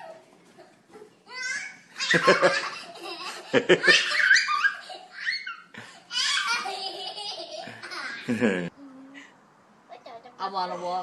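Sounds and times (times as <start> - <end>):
people laughing: 2.1 - 4.6, 6.5 - 8.7.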